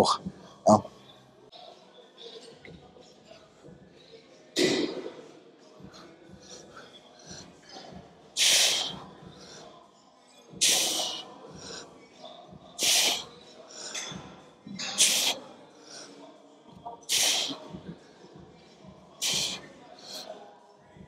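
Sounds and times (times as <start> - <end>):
man breathing out forcefully: 19.2 - 19.6.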